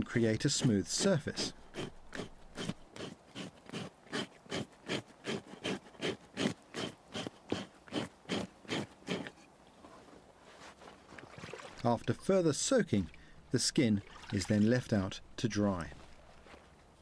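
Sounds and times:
skin being scraped: 0:00.0 - 0:09.5.

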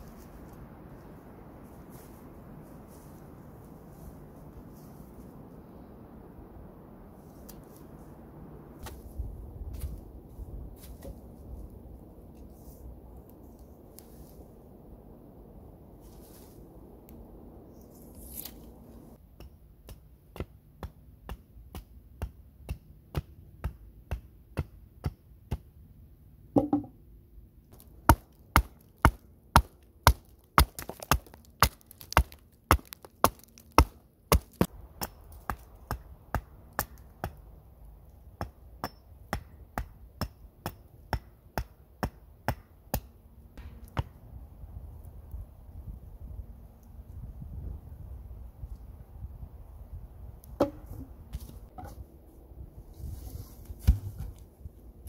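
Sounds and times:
hatchet chopping wood: 0:28.0 - 0:37.4, 0:38.4 - 0:44.1, 0:50.6 - 0:50.9.

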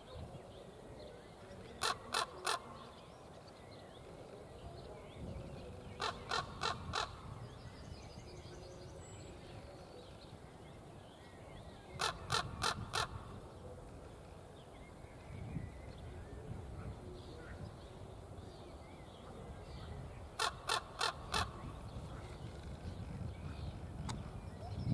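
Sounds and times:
raven calling: 0:01.7 - 0:03.0, 0:05.9 - 0:07.4, 0:12.0 - 0:13.5, 0:20.4 - 0:22.5.

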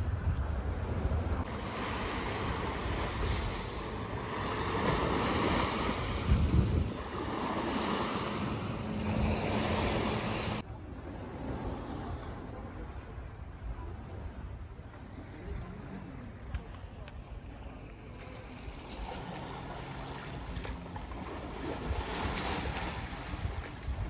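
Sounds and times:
sea waves washing over rocks: 0:00.0 - 0:13.0, 0:18.0 - 0:24.0
wind buffeting microphone: 0:00.0 - 0:16.7, 0:21.3 - 0:24.0.

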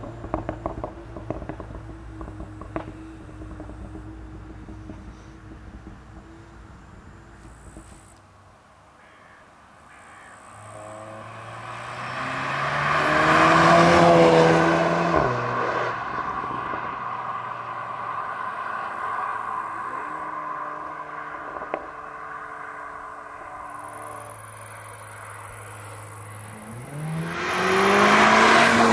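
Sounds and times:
car engine accelerating past: 0:10.4 - 0:28.9.

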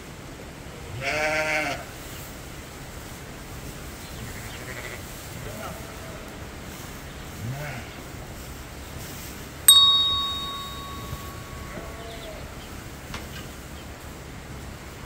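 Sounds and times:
bright bell ding: 0:09.7 - 0:12.2.

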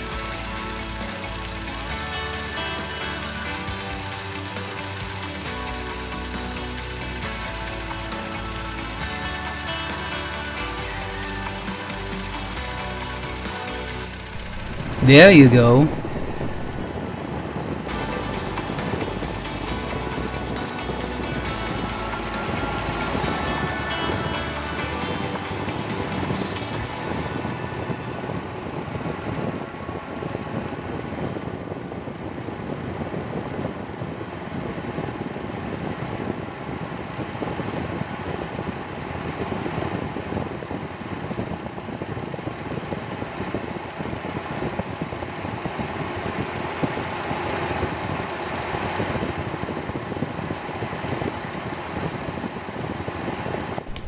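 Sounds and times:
radiator fan running: 0:00.0 - 0:54.0
car engine idling: 0:00.3 - 0:15.0, 0:15.9 - 0:16.9.

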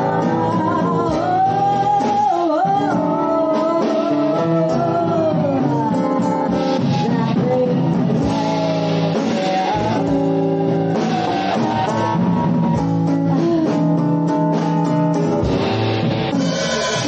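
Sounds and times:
guitar: 0:00.0 - 0:17.0
live band playing: 0:00.0 - 0:17.0
drum hits: 0:08.3 - 0:13.0.

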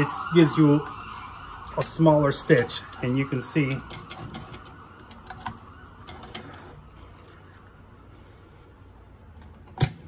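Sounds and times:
low steady hum: 0:00.0 - 0:10.0
fabric rustling: 0:05.8 - 0:09.6.

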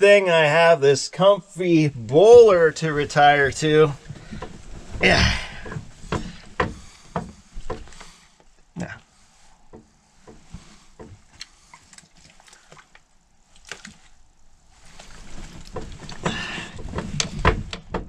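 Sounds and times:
bedding rustling: 0:02.0 - 0:11.7, 0:13.4 - 0:18.0
small clicks and knocks: 0:15.6 - 0:18.0.

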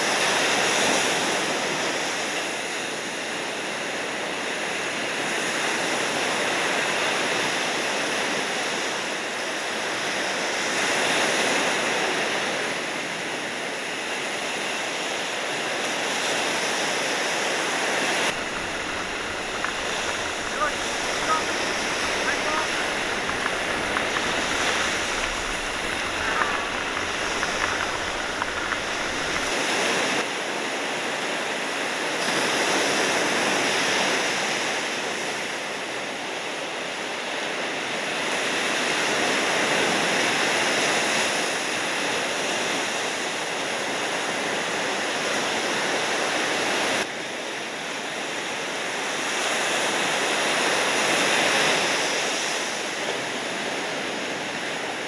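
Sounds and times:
ocean surf rushing: 0:13.8 - 0:35.8.

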